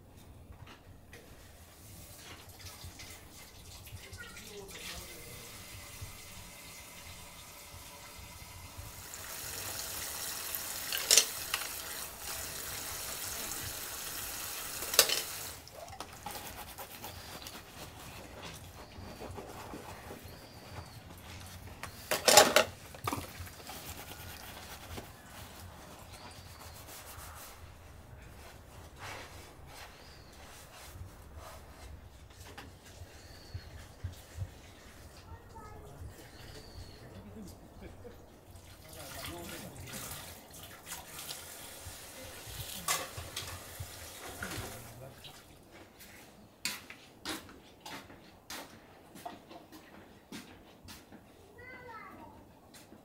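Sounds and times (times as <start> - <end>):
tap water running into bowl: 2.2 - 16.4, 38.5 - 45.5
dishes being scrubbed by hand: 9.3 - 35.3
metal utensils clinking: 10.8 - 11.8, 14.8 - 15.6, 22.1 - 23.2, 42.8 - 44.8.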